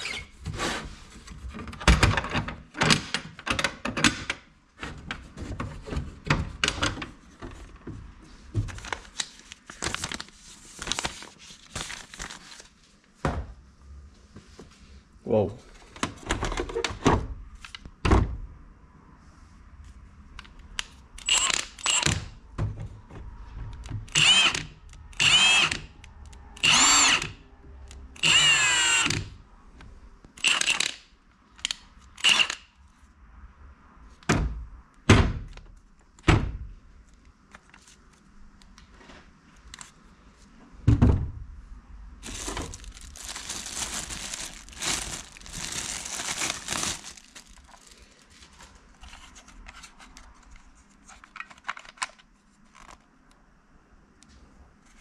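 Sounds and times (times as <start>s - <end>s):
plastic wrapping crinkling: 8.7s - 12.8s, 42.2s - 48.9s
impact wrench motor whining: 24.1s - 25.8s, 26.6s - 27.3s, 28.2s - 29.2s, 32.2s - 32.6s.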